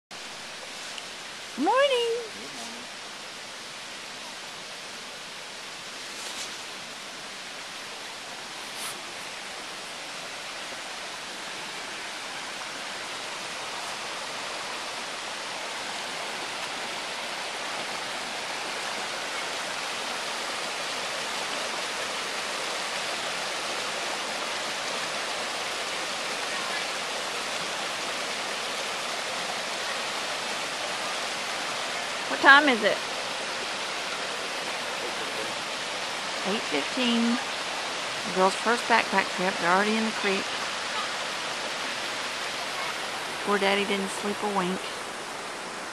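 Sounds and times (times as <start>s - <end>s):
creek rushing over rocks: 0.1s - 45.9s.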